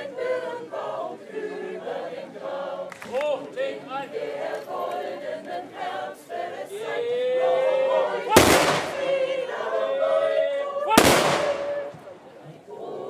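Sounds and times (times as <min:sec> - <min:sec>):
rifle salute volley: 0:08.3 - 0:09.3, 0:10.9 - 0:12.1.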